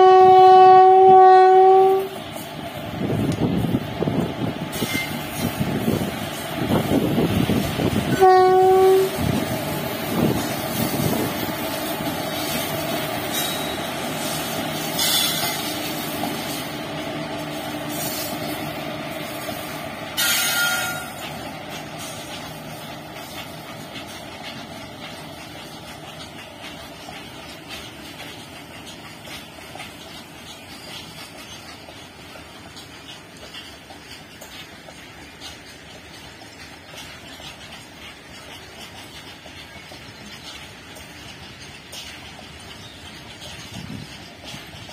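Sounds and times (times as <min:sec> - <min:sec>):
locomotive horn: 0:00.0 - 0:02.2, 0:08.1 - 0:09.3
freight train rumbling past: 0:00.0 - 0:44.9.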